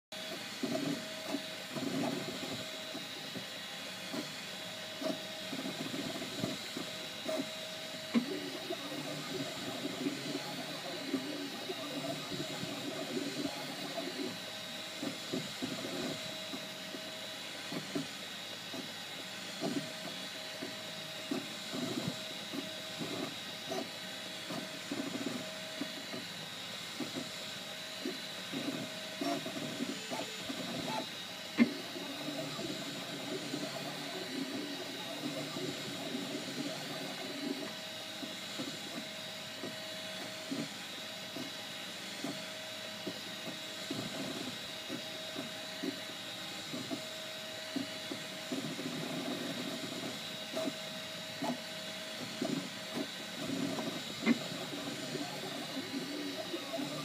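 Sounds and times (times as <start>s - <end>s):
cooling fans hissing: 0.2s - 57.0s
stepper motors whirring: 0.3s - 57.0s.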